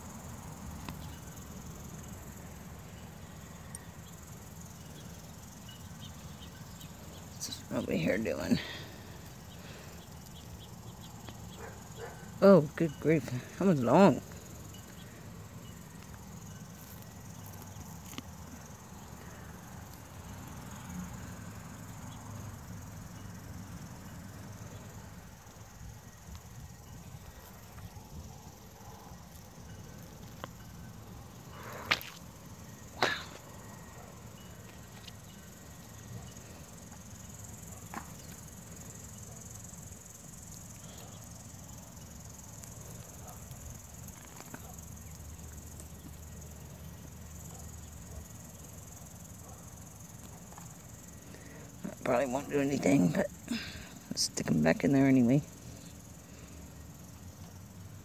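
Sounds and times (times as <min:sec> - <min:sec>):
rustling of carrot tops and soil: 0:00.0 - 0:22.6, 0:24.6 - 0:58.0
crickets chirping: 0:00.0 - 0:58.0.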